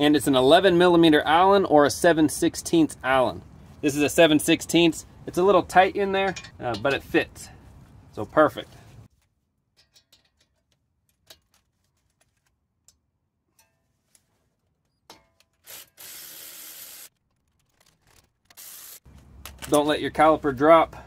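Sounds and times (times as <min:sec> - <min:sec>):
electric ratchet whirring: 0:15.6 - 0:17.1, 0:18.5 - 0:19.0.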